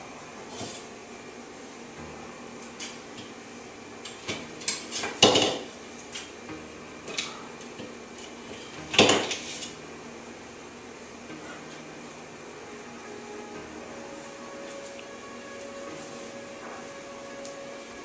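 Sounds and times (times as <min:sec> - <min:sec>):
dishes clinking and clattering: 0:04.1 - 0:06.3, 0:07.1 - 0:09.8.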